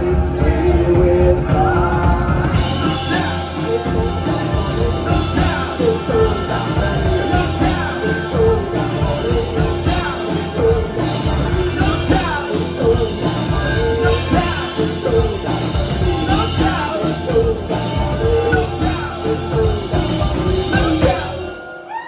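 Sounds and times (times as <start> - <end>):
country band playing live: 0.0 - 22.0
person singing: 0.0 - 22.0.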